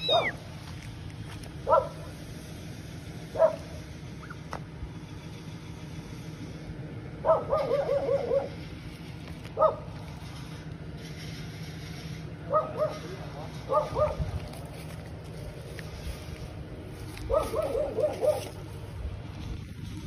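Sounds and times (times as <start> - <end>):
kitten mewing: 0.0 - 0.4.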